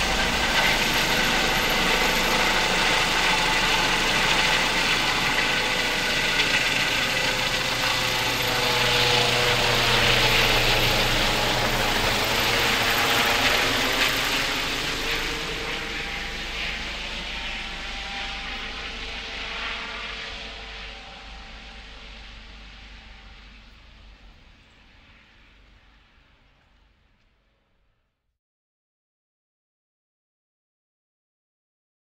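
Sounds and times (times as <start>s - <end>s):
helicopter passing overhead: 0.0s - 27.0s.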